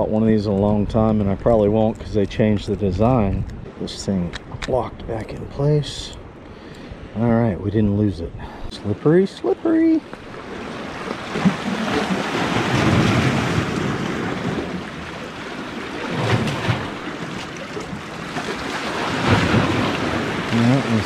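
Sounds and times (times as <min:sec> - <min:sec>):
wind on microphone: 0:00.0 - 0:06.2
surf washing against rocks: 0:08.8 - 0:21.0.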